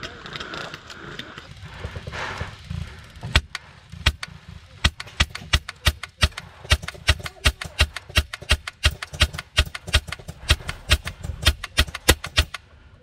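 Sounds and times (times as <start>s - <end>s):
airsoft gun shots: 3.3s - 12.6s.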